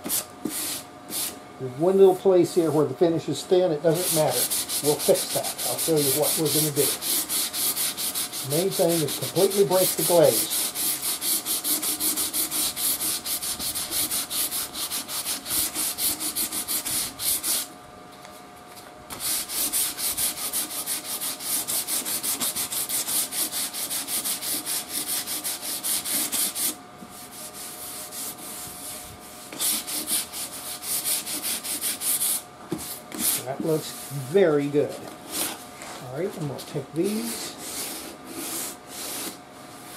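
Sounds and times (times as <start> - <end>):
sandpaper rubbing on wood: 3.9 - 17.7, 19.1 - 34.2, 37.0 - 39.9.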